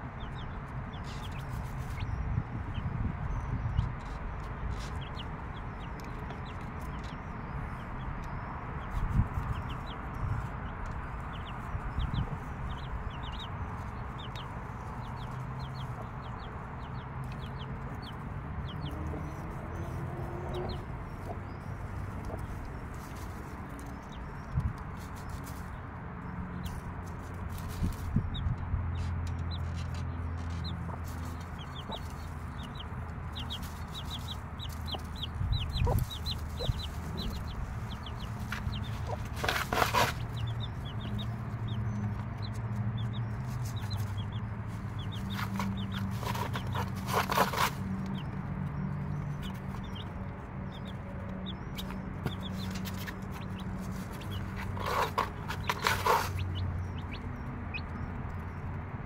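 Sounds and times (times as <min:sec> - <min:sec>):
chicks peeping: 0:00.0 - 0:59.0
hen clucking: 0:11.2 - 0:23.3, 0:30.6 - 0:48.3, 0:50.7 - 0:58.0.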